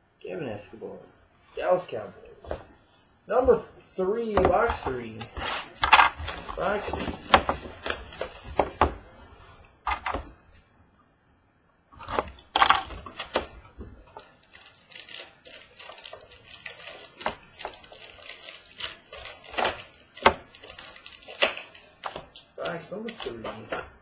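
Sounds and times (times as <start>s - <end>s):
cards crinkly rustling: 4.5s - 9.6s, 14.2s - 23.8s.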